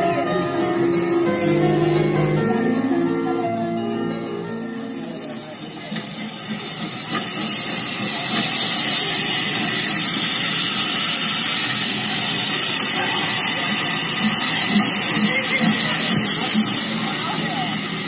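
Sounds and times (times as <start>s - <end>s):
steam hissing: 0.0s - 18.0s.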